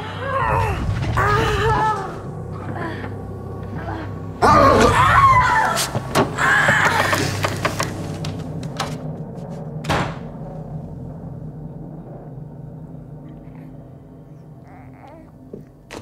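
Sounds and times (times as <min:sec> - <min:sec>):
sharp bangs and thuds: 0:09.8 - 0:10.4.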